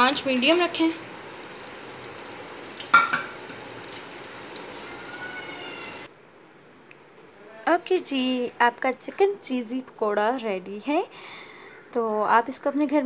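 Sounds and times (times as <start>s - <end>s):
deep-frying sizzle: 0.0s - 6.1s.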